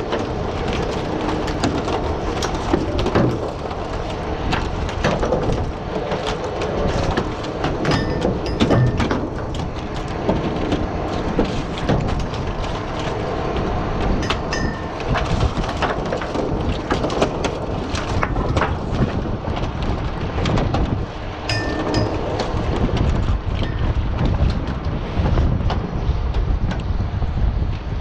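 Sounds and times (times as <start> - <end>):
boat engine running: 0.0 - 28.0
oyster shells clattering on wood: 7.9 - 9.4, 21.5 - 22.6.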